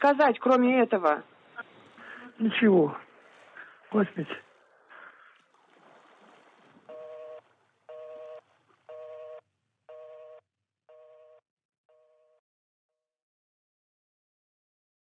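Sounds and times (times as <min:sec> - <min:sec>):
faint splashing water: 0:01.1 - 0:09.9
telephone busy tone: 0:06.9 - 0:12.4.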